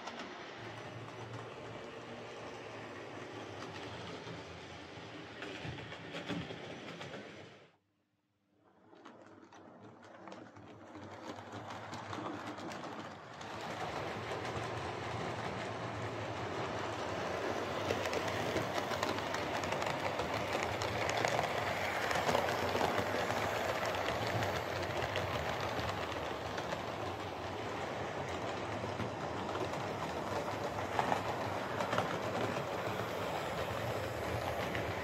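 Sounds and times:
wheels clicking on rails: 8.9 - 35.0.

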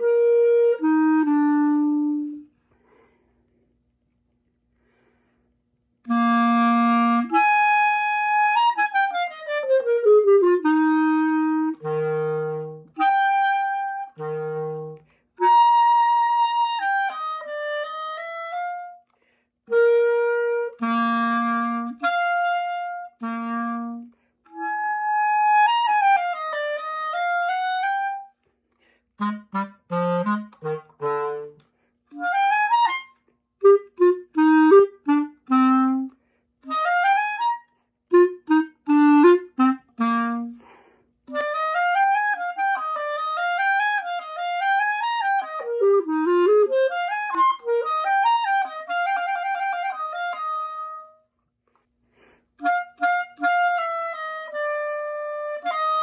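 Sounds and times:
solo clarinet melody: 0.0 - 3.0, 6.0 - 51.4, 52.2 - 56.0.

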